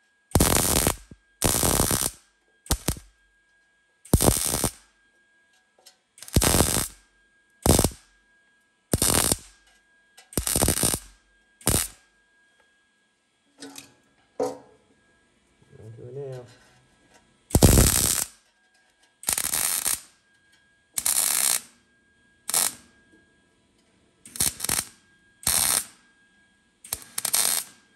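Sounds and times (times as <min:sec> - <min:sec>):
welder arc bursts: 0:00.3 - 0:03.1, 0:04.1 - 0:04.8, 0:06.2 - 0:07.0, 0:07.6 - 0:08.0, 0:08.9 - 0:09.6, 0:10.4 - 0:12.0, 0:17.5 - 0:18.4, 0:19.2 - 0:20.2, 0:21.0 - 0:21.8, 0:22.4 - 0:22.8, 0:24.3 - 0:26.0, 0:26.9 - 0:27.8.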